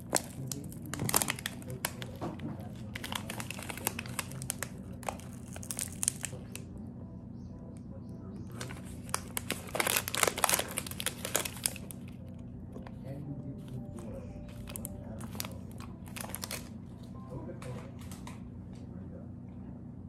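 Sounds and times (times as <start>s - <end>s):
food wrapper crinkling: 0.0s - 6.6s, 8.5s - 13.0s, 13.6s - 18.4s.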